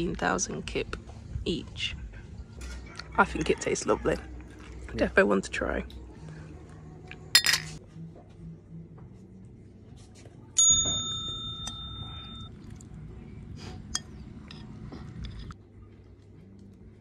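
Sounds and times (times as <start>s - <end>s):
glasses clinking: 7.4s - 7.8s, 10.6s - 12.5s.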